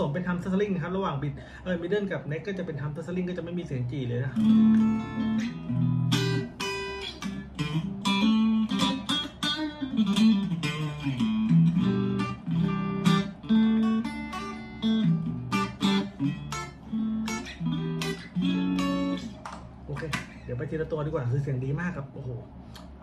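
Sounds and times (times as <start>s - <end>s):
electric guitar through amplifier: 4.4s - 20.4s.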